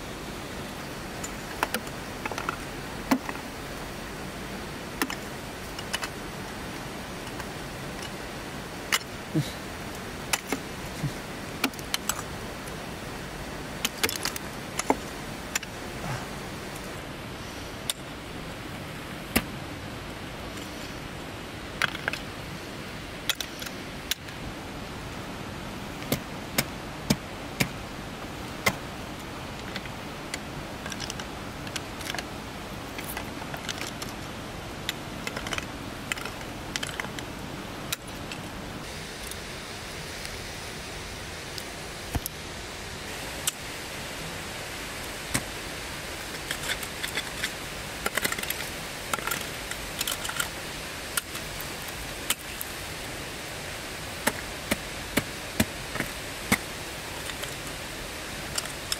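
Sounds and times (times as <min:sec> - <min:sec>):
steady hiss: 0:00.0 - 0:58.9.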